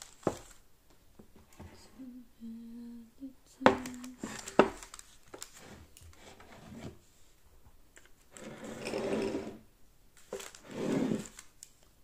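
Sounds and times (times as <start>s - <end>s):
rubbing scrape: 8.4s - 9.6s, 10.6s - 11.4s.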